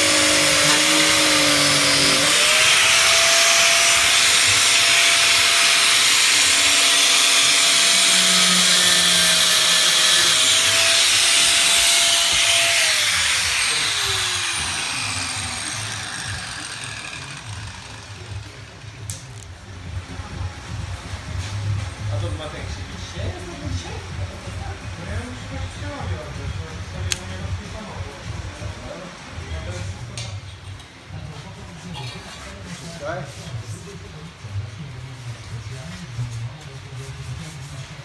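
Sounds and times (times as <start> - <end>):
angle grinder cutting: 0.0 - 18.6.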